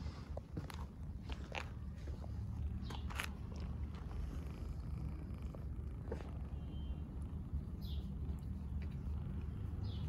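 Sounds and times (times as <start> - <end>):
cat purring: 3.6 - 10.0.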